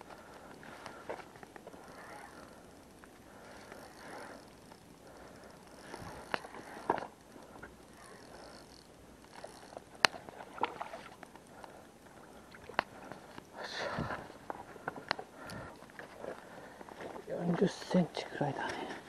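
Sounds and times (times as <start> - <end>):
fishing tackle clicks and knocks: 5.5 - 11.8.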